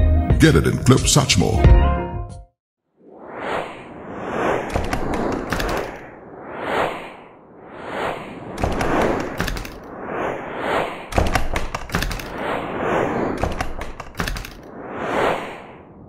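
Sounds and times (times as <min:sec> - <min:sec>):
whoosh sound effects: 0:03.0 - 0:16.0
rapid clicks: 0:04.7 - 0:06.0, 0:08.6 - 0:09.9, 0:11.1 - 0:12.5, 0:13.3 - 0:14.7.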